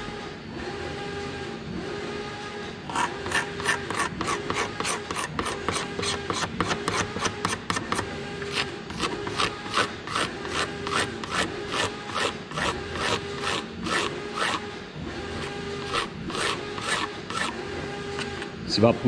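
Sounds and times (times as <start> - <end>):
blade scraping bamboo rod: 2.9 - 14.7, 15.3 - 18.5.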